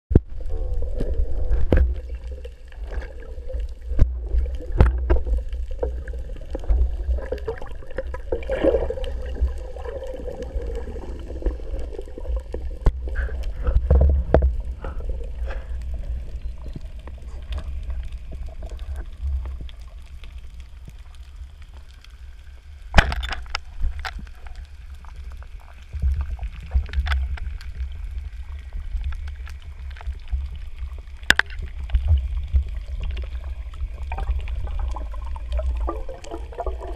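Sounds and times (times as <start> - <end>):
underwater water flowing rumble: 0.1 - 36.9
sharp clicks and knocks: 23.0 - 24.2.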